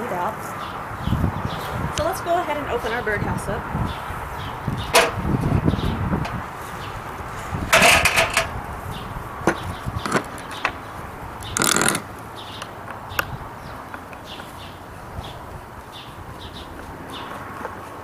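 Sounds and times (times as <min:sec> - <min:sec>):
knocks and clicks: 0:04.9 - 0:05.2
metal tub scraping on tiles: 0:07.4 - 0:08.5.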